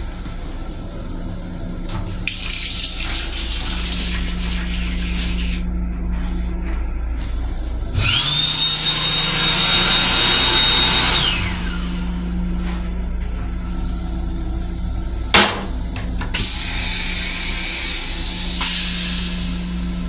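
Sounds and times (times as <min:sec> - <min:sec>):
railcar low hum: 0:00.0 - 0:02.2, 0:05.0 - 0:08.2, 0:11.5 - 0:20.0
electric hand dryer blowing: 0:08.0 - 0:12.1, 0:15.4 - 0:18.2
sharp knock: 0:15.4 - 0:16.4.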